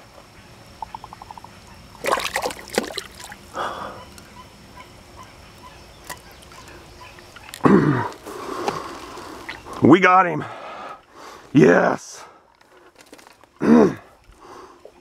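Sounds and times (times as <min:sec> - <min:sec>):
water splashing and sloshing: 0:01.9 - 0:03.5.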